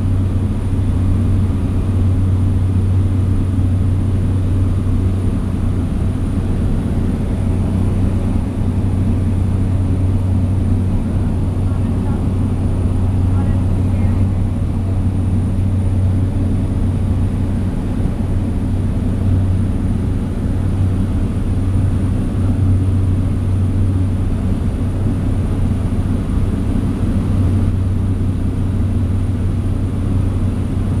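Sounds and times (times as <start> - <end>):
propeller plane cabin drone: 0.0 - 31.0.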